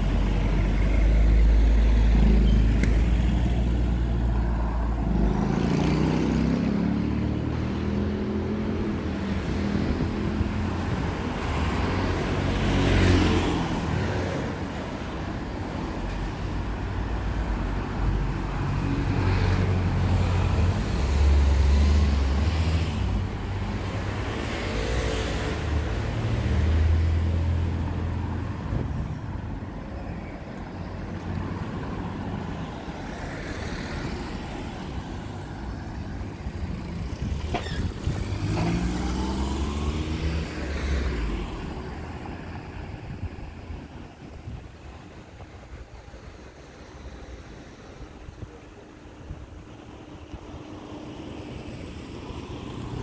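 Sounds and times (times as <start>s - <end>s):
cars passing: 0.0s - 53.0s
car accelerating: 36.8s - 41.5s.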